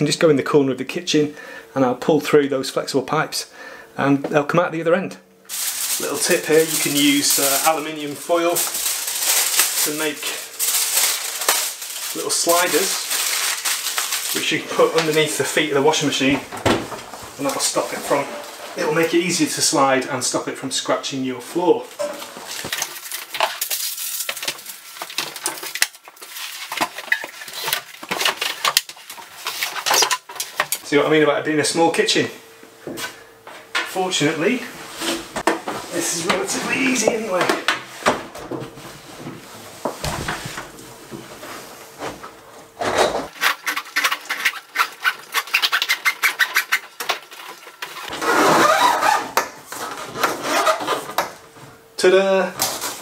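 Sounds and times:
rustling: 5.5s - 19.2s
hoses scraping inside pipe: 43.3s - 49.3s.

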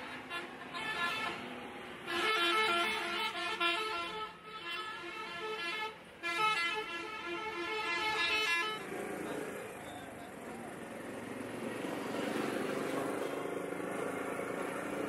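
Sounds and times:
vehicle horn playing a tune: 0.0s - 8.9s.

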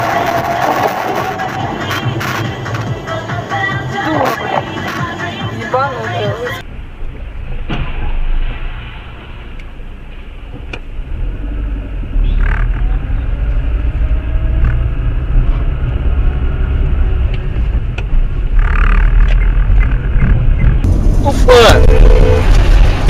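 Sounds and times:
car engine and road rumble: 0.0s - 23.0s.

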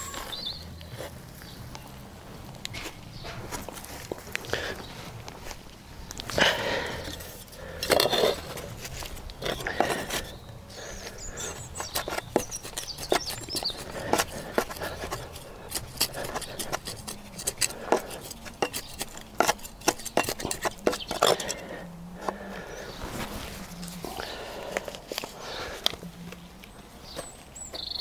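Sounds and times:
bird calling: 0.0s - 1.9s, 9.4s - 19.0s, 20.1s - 28.0s
trowel scraping in gritty soil: 2.7s - 28.0s.

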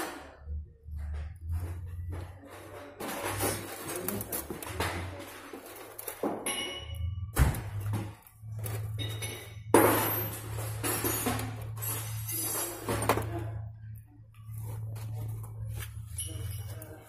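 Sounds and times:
metal parts clinking and knocking: 8.6s - 13.6s.

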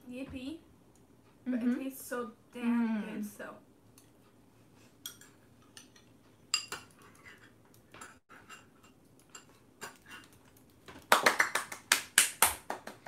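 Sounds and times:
spoons clinking on ceramic bowls: 5.0s - 10.4s.

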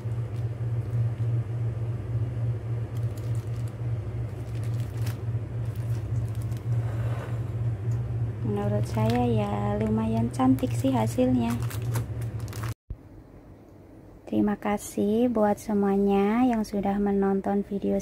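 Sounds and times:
low machine rumble: 0.0s - 18.0s
plastic bags crinkling: 2.8s - 6.8s, 8.6s - 12.8s.

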